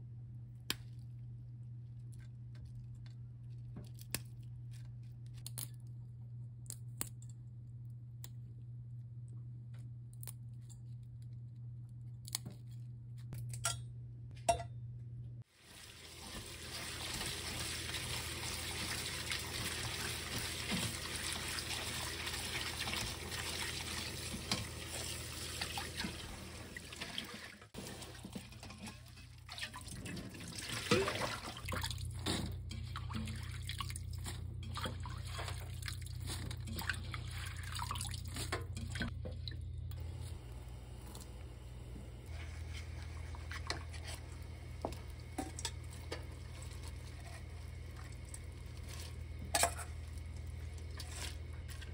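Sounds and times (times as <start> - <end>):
splashing and rubbing seaweed: 15.5 - 39.2, 42.3 - 51.9
tap water running: 15.5 - 51.9
hands handling seaweed in bowl: 31.9 - 39.1.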